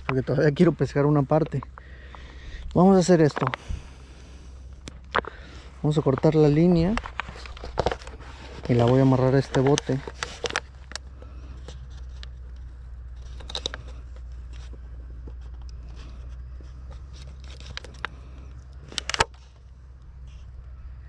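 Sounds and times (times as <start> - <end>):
steady low rumble: 0.0 - 21.0
fishing line handling clicks and scrapes: 4.7 - 20.6.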